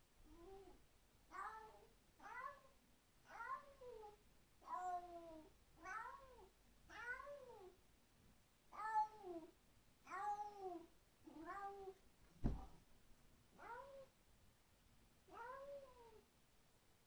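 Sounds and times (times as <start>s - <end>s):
cat meowing: 15.3s - 16.2s.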